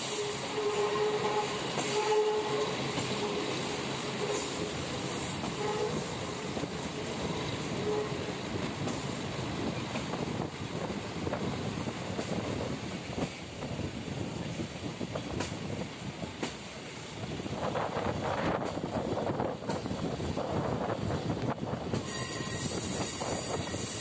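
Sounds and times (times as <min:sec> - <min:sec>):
train wheels rumbling on rails: 0:00.0 - 0:24.0
sharp rail clicks: 0:15.1 - 0:15.7, 0:18.3 - 0:20.1
train wheels squealing: 0:21.9 - 0:24.0.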